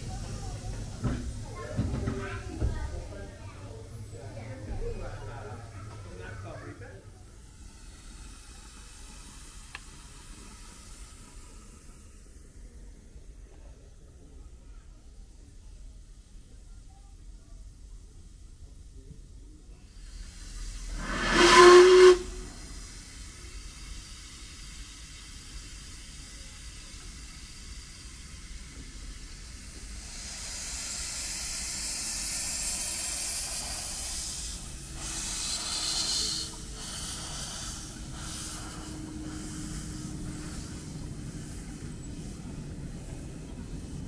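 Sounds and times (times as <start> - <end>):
escaping steam hiss: 0.0 - 3.7, 4.4 - 13.6, 19.7 - 44.0
steam locomotive whistle: 20.7 - 22.8, 34.9 - 41.6.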